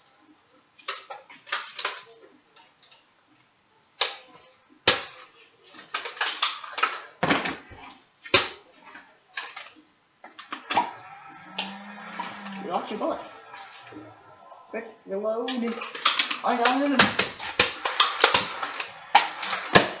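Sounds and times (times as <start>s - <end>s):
plastic toy blaster clacks: 5.8s - 7.0s, 15.8s - 20.0s.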